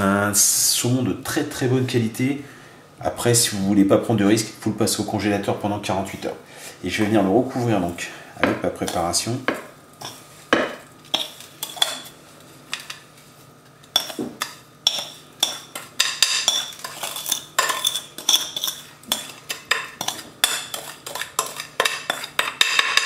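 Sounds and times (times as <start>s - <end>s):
spoon scraping glass bowl: 11.1s - 12.2s, 13.9s - 23.0s.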